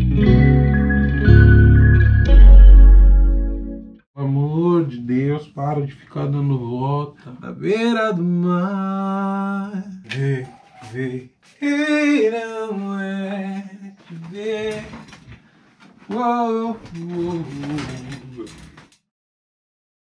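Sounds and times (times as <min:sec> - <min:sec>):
man singing without words: 0:04.2 - 0:15.1, 0:16.1 - 0:18.6.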